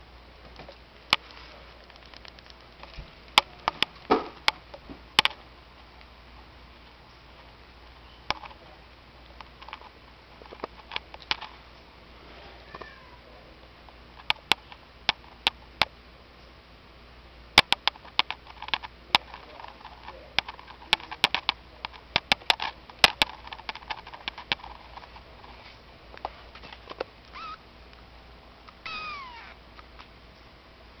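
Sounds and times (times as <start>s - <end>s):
kitten meowing: 27.3s - 27.6s, 28.8s - 29.6s.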